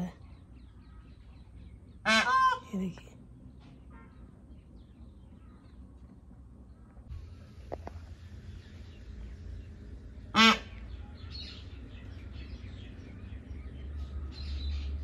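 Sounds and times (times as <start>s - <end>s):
low steady rumble: 0.2s - 15.0s
peafowl honking call: 2.0s - 2.6s, 10.3s - 10.8s.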